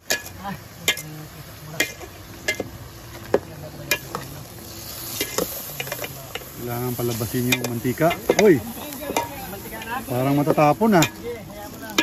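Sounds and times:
chicken sizzling faintly: 0:00.0 - 0:12.0
metal spoon clinking against pot: 0:07.4 - 0:09.3.

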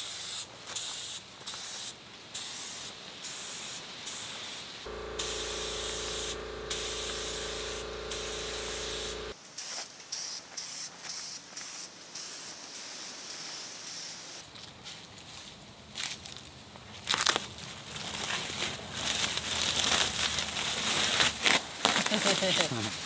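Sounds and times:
paint spray gun hissing: 0:03.3 - 0:09.4
steady hum: 0:04.9 - 0:09.4.

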